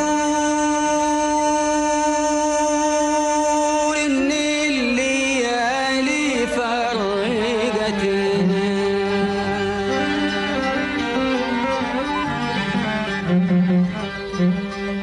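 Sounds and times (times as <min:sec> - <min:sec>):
man singing melisma: 0:00.0 - 0:11.7.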